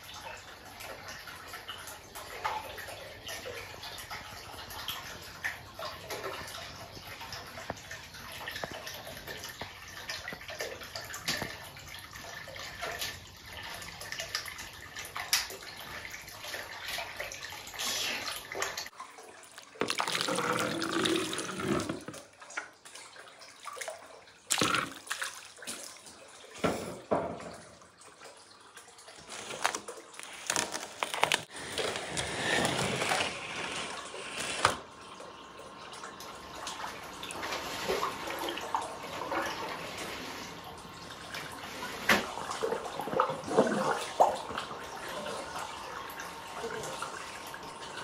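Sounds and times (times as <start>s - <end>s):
water dripping: 0.0s - 31.4s
water trickling and splashing: 0.0s - 48.0s.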